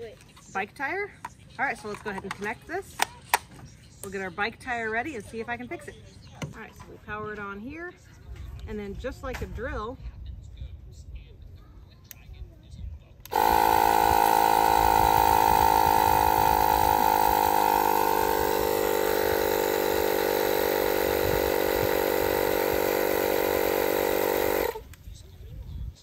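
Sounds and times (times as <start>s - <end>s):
tire inflator pumping air: 13.2s - 25.0s.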